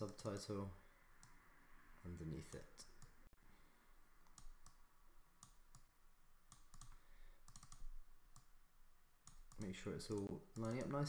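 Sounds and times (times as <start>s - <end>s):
computer mouse clicks: 0.0s - 0.5s, 1.2s - 1.4s, 4.2s - 4.8s, 5.4s - 5.9s, 6.5s - 8.5s, 9.2s - 11.0s.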